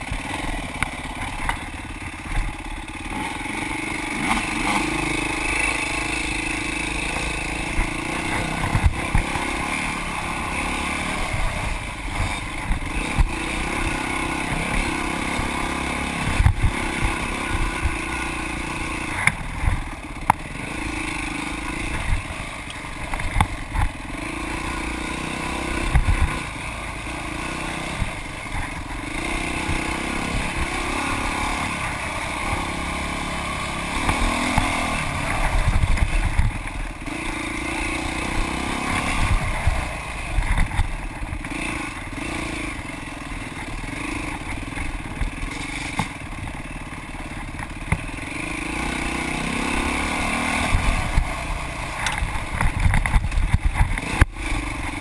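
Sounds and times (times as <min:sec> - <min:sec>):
thumps and clatter over bumps: 0:00.0 - 0:37.4, 0:38.0 - 0:48.3, 0:50.3 - 0:55.0
dirt bike engine revving: 0:00.0 - 0:55.0.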